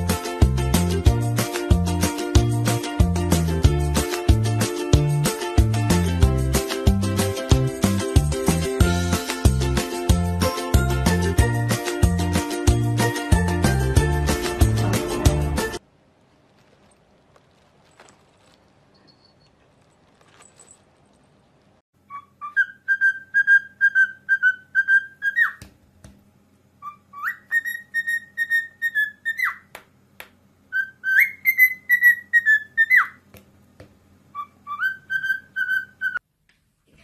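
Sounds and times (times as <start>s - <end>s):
cockatiel whistling: 22.0s - 25.6s, 26.8s - 29.7s, 30.7s - 33.2s, 34.3s - 36.2s.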